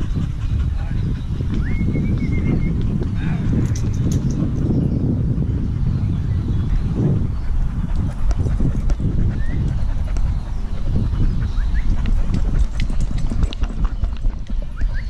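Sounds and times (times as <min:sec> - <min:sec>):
camera mount jostling against fur: 0:03.6 - 0:04.6, 0:12.1 - 0:14.7.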